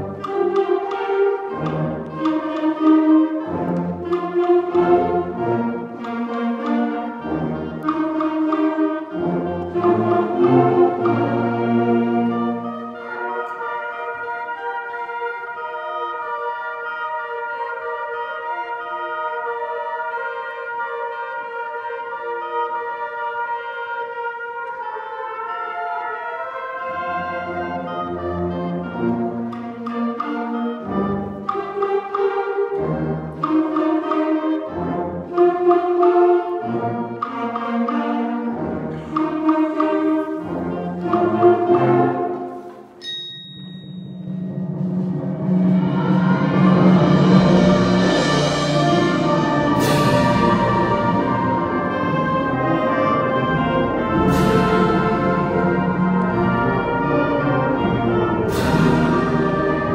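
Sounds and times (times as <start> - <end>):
concert band playing: 0.0 - 25.0, 26.5 - 59.9
low brass: 44.5 - 59.9.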